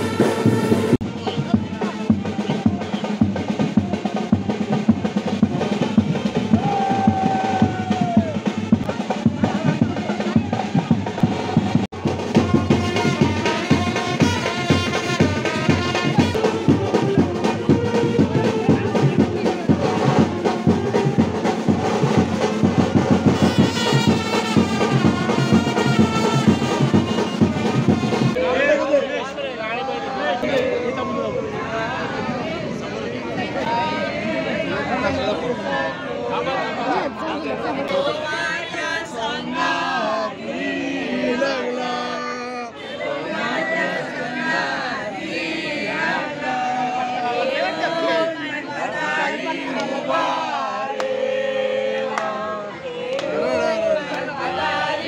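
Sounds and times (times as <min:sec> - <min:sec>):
music with fast dense drumming: 0:00.0 - 0:28.4.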